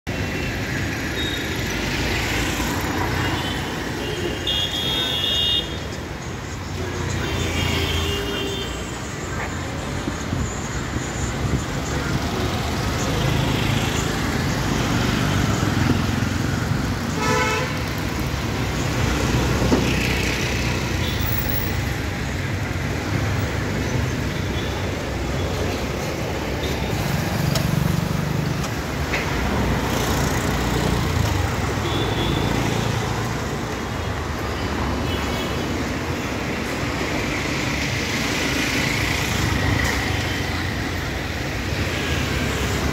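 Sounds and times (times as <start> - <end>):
busy street traffic: 0.0 - 42.9
vehicle horns honking: 17.1 - 17.8.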